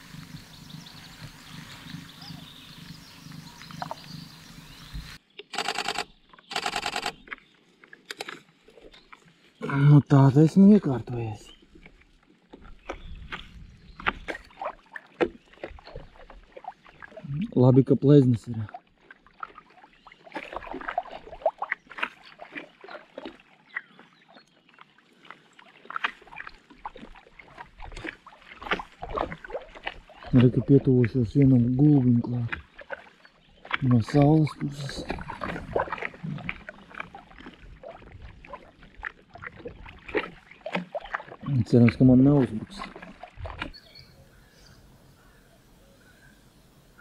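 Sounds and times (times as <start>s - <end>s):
water splashing and lapping: 0.0s - 47.0s
camera shutter bursts: 5.5s - 7.2s.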